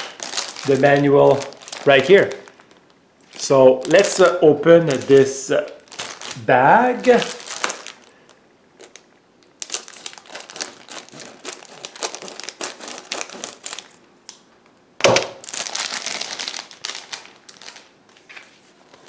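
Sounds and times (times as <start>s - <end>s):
plastic bag crinkling: 0.0s - 14.1s, 15.3s - 19.0s.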